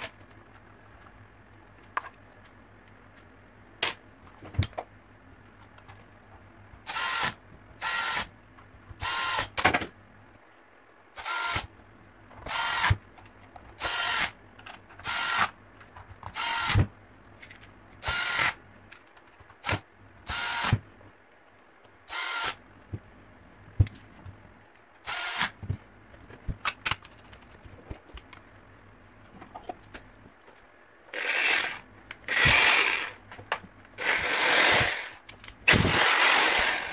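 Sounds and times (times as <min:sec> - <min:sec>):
power drill motor running: 0:06.9 - 0:08.3, 0:11.2 - 0:11.7, 0:12.5 - 0:13.0, 0:13.8 - 0:14.3, 0:15.0 - 0:15.5, 0:16.4 - 0:16.8, 0:18.0 - 0:18.6, 0:20.3 - 0:20.8, 0:22.1 - 0:22.6, 0:25.1 - 0:25.5, 0:31.1 - 0:33.2, 0:34.0 - 0:36.9.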